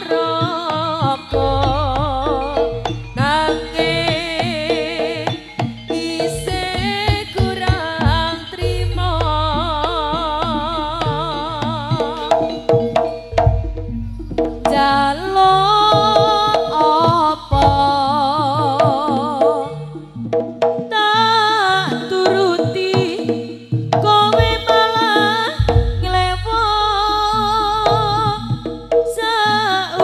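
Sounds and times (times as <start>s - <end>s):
wavering melody line: 0.2s - 20.3s
quick hand-drum strokes: 0.3s - 18.1s, 22.1s - 26.6s.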